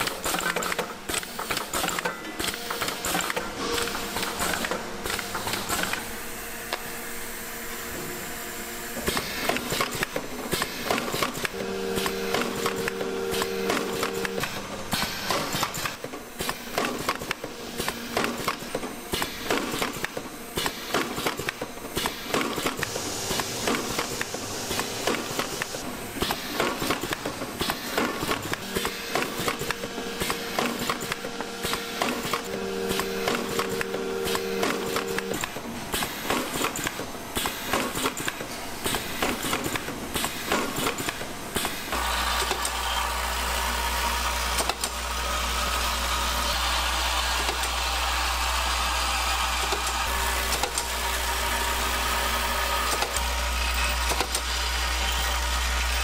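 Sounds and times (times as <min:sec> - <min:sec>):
machine hum: 0:41.9 - 0:56.0.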